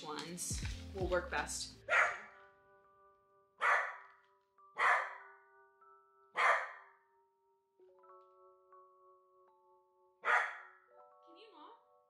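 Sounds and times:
soft background music: 0:00.0 - 0:12.0
dog barking: 0:01.9 - 0:02.3, 0:03.6 - 0:04.1, 0:04.8 - 0:05.3, 0:06.4 - 0:06.9, 0:10.2 - 0:10.8.

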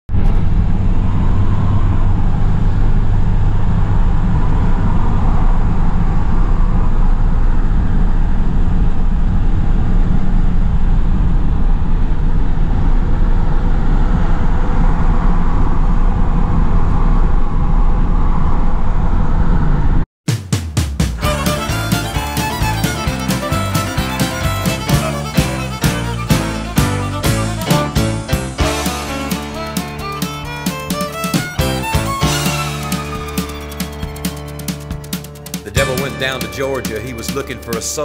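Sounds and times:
tractor engine running: 0:21.2 - 0:38.0.

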